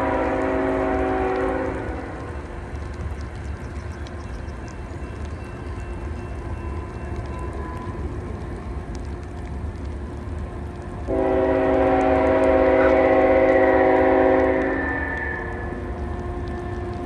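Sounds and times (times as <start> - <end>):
train horn blast: 0.0 - 2.2, 11.0 - 16.6
steady low rumble: 0.0 - 17.0.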